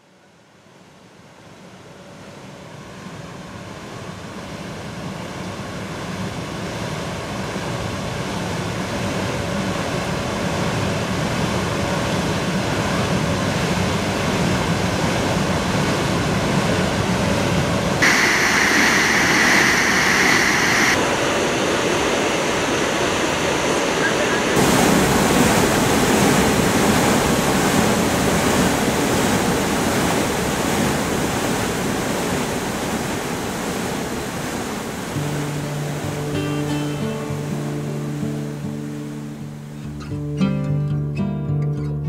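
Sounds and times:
bright hissy splashing: 18.0s - 39.6s
water splashing from screw pumps: 24.6s - 35.2s.

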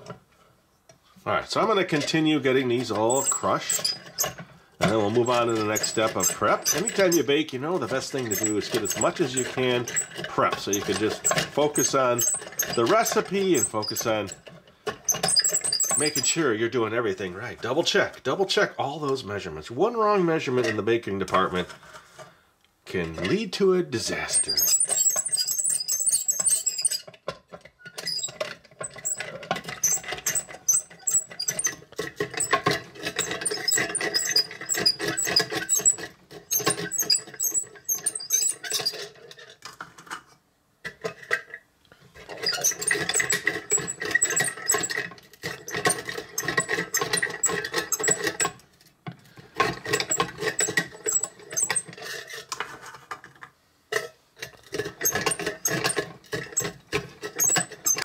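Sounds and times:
crank mechanism squeaking: 1.9s - 16.5s, 24.1s - 39.2s, 42.3s - 48.6s, 49.6s - 52.4s, 54.9s - 58.0s.

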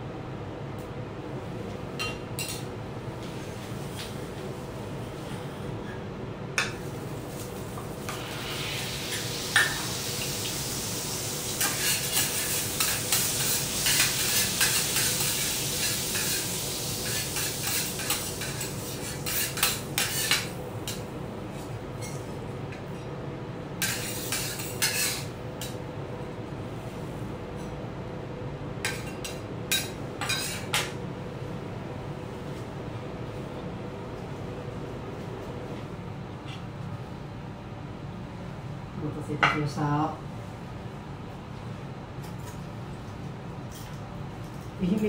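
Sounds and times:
sauce sizzling on a hot griddle: 8.0s - 20.6s
metal spatulas scraping a griddle: 17.0s - 20.5s, 23.8s - 25.3s.

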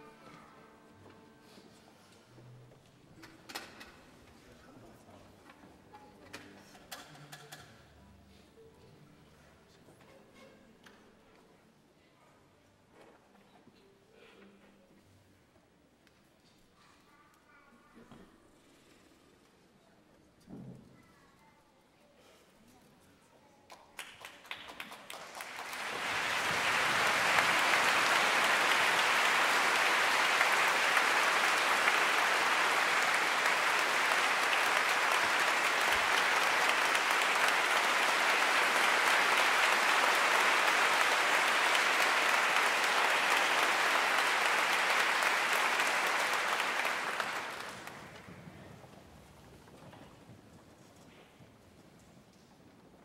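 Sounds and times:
audience applauding: 24.0s - 48.5s.

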